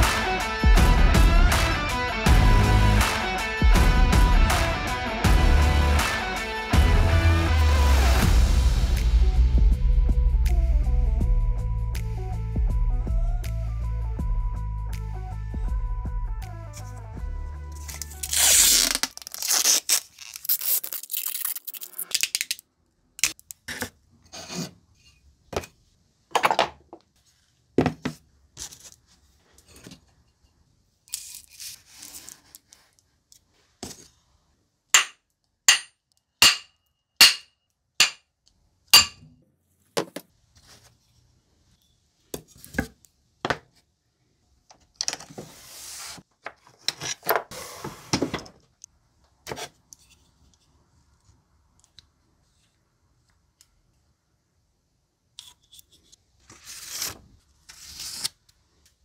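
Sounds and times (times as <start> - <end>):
tape ripping off the roll: 17.8 - 22.6.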